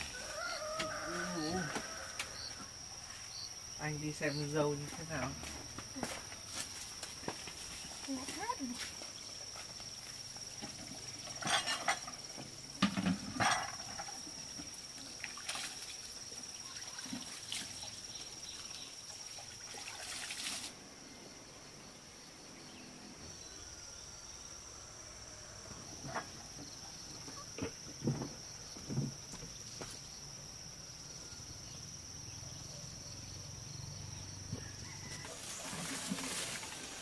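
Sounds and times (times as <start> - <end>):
insects droning: 0.0 - 37.0
rustles: 5.3 - 12.3, 34.4 - 37.0.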